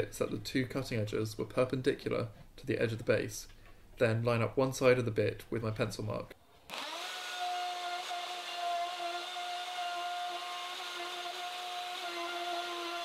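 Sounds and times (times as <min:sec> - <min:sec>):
router motor whining: 0:06.7 - 0:13.0.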